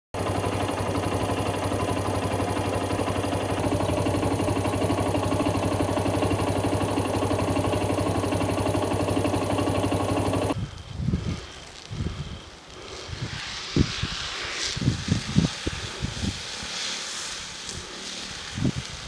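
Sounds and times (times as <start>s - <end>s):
engine humming: 0.2s - 10.6s.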